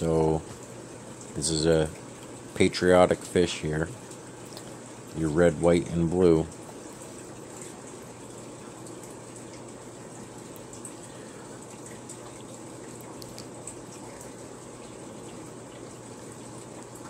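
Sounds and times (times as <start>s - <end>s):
aquarium water bubbling: 0.0s - 17.0s
small high ticks: 11.8s - 17.0s.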